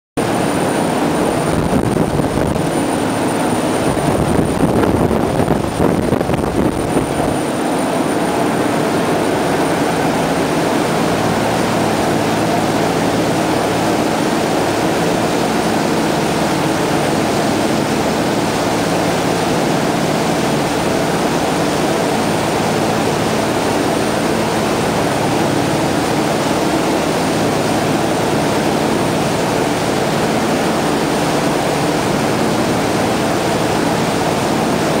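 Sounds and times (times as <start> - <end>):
churning wake rushing: 0.2 - 35.0
wind buffeting microphone: 0.9 - 7.7.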